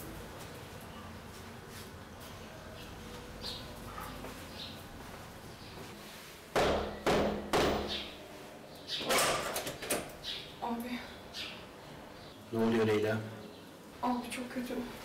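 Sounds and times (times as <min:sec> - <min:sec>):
knocks on a door: 0:06.6 - 0:08.0.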